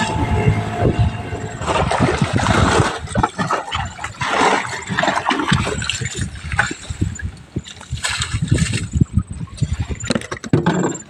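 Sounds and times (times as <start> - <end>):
water splashing around jerry can: 1.6 - 6.9.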